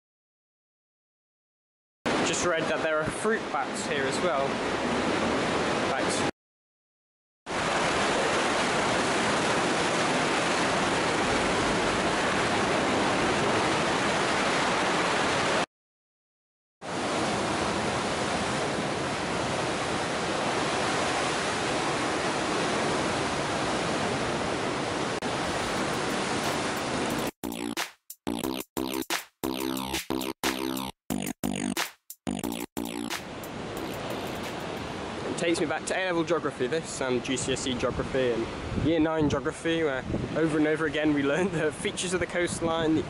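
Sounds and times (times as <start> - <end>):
sea water surging in caves: 2.1 - 6.3, 7.5 - 15.7, 16.9 - 27.3, 33.5 - 37.4.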